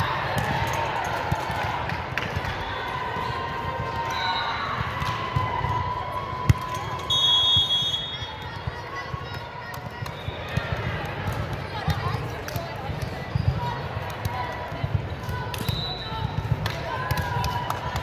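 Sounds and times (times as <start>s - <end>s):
voices of players and spectators: 0.0s - 18.0s
referee's whistle blast: 7.0s - 8.4s, 15.6s - 16.3s.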